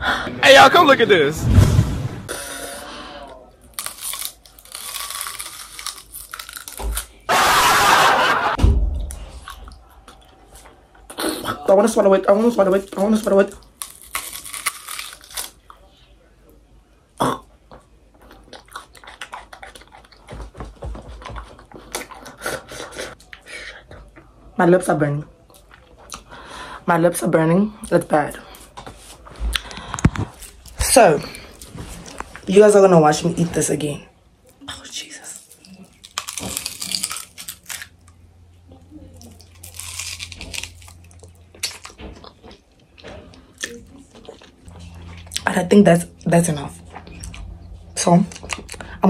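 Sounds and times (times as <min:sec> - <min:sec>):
low thumps: 0:01.4 - 0:02.3
crunchy chewing: 0:03.6 - 0:07.3, 0:12.8 - 0:16.0, 0:17.7 - 0:23.4, 0:35.1 - 0:38.2, 0:39.2 - 0:45.4, 0:46.8 - 0:49.0.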